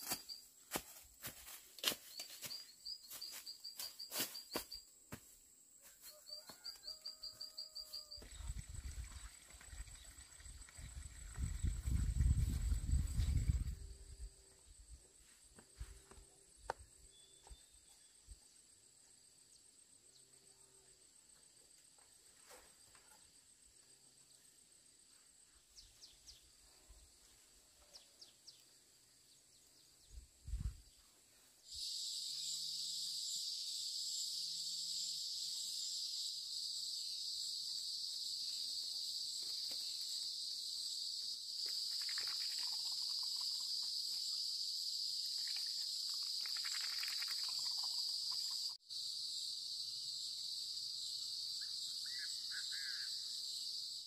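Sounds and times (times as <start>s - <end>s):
high-pitched insect chorus: 0.0s - 5.3s, 6.0s - 15.0s, 30.4s - 54.0s.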